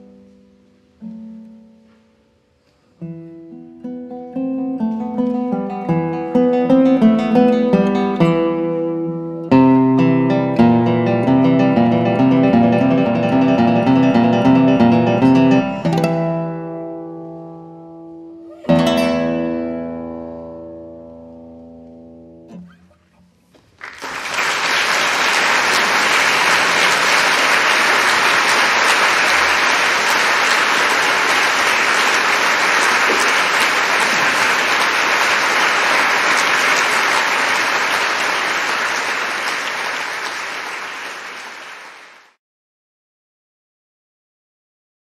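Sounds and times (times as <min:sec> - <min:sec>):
classical guitar chord ringing: 0:03.1 - 0:22.7
audience applauding: 0:23.8 - 0:42.4.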